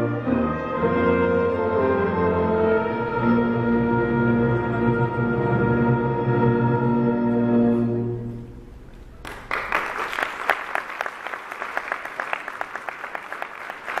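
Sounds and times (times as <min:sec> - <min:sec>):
orchestra sustained chord: 0:00.0 - 0:08.6
audience applause: 0:09.2 - 0:14.0.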